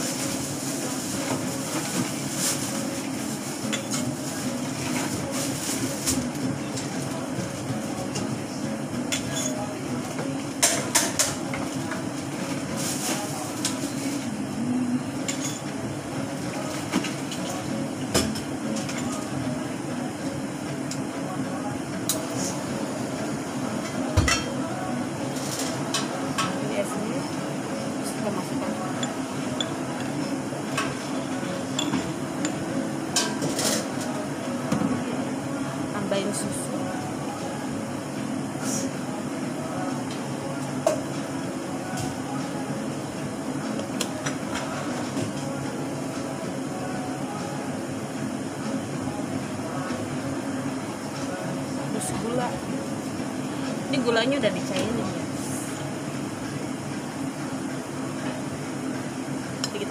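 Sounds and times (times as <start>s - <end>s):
cups and dishes clinking: 28.9s - 31.0s, 31.7s - 33.8s.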